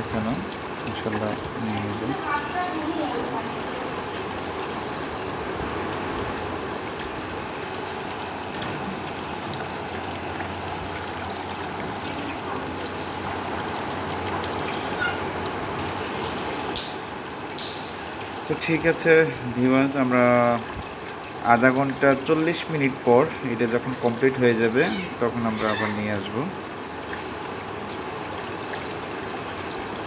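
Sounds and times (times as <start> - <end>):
oil sizzling and bubbling: 0.0 - 30.0.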